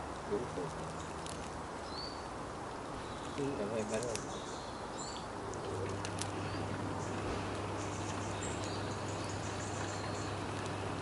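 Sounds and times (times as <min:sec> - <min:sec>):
steady low hum: 0:05.3 - 0:11.0.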